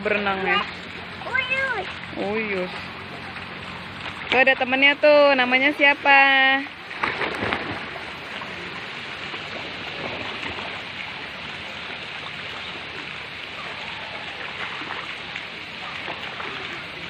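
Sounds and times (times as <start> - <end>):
fountain water rushing: 0.0 - 17.0
children splashing in water: 6.8 - 17.0.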